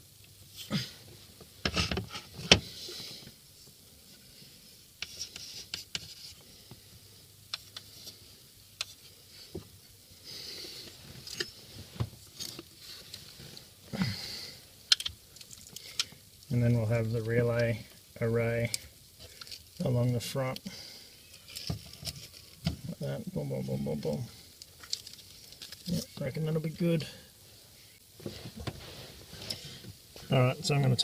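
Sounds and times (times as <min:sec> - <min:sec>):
parts scraping and rubbing: 0:05.0 - 0:06.4.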